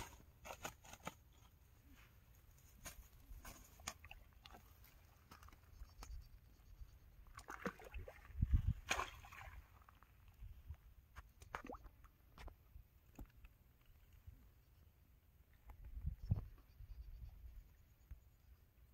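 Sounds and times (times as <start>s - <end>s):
water sloshing and splashing: 3.2s - 6.2s, 7.2s - 14.2s
splash with low thud: 7.4s - 9.7s.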